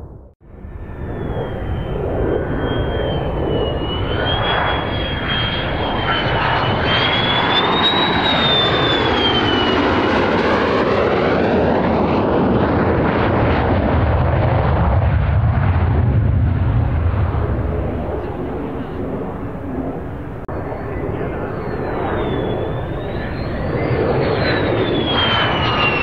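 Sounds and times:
deep rumble: 0:00.0 - 0:07.6
jet engine roar and whine: 0:00.0 - 0:26.0.

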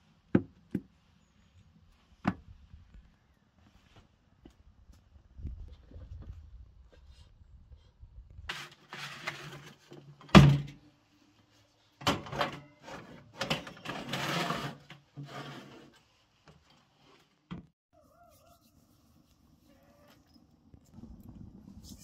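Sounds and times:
baking tray clattering and scraping: 0:08.5 - 0:10.6, 0:12.0 - 0:16.0.

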